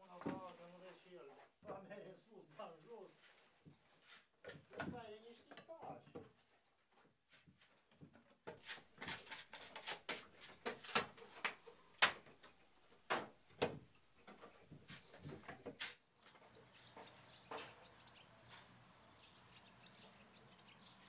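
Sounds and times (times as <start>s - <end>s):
wooden shingles knocking together: 8.0s - 16.0s.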